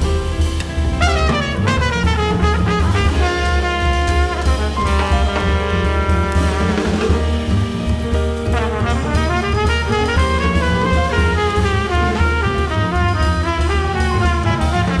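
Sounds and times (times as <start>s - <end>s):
small jazz band playing: 0.0s - 15.0s
trumpet: 0.9s - 7.6s, 8.4s - 15.0s.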